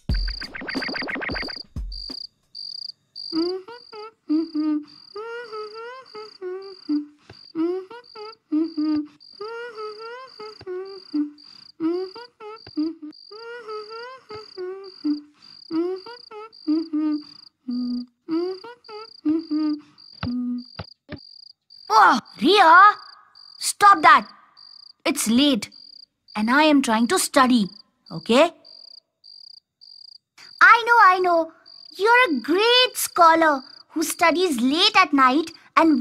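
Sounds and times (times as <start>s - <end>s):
cricket chirping: 0.0s - 36.0s
child humming a tune: 3.3s - 20.8s.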